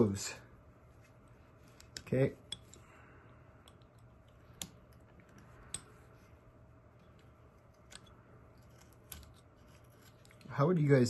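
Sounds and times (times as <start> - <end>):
knife carving hard wood: 7.8 - 10.5.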